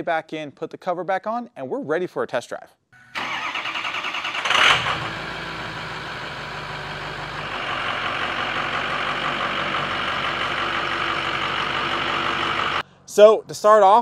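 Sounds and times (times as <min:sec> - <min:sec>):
diesel engine cranking and starting: 0:03.2 - 0:12.8
diesel engine idling: 0:03.2 - 0:13.0.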